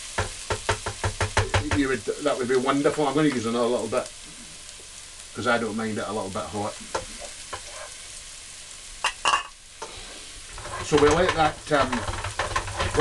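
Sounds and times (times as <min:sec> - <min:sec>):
paste sizzling in hot oil: 0:00.0 - 0:13.0
sharp knocks: 0:00.2 - 0:01.8
wooden spoon stirring: 0:06.8 - 0:08.0, 0:09.8 - 0:13.0.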